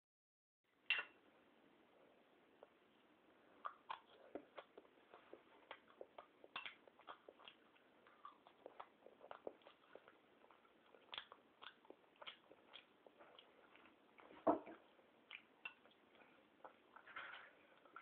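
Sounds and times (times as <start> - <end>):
child eating with spoon: 3.6 - 18.0.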